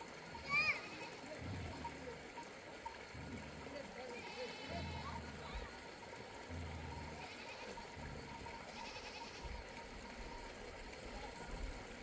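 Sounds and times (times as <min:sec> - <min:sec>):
distant goats bleating: 0:04.1 - 0:05.8, 0:06.7 - 0:09.8.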